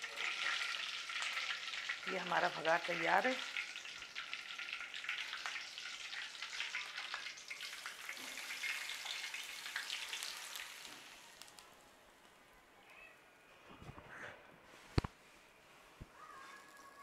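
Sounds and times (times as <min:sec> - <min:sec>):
hot oil sizzling and crackling: 0:00.0 - 0:11.7.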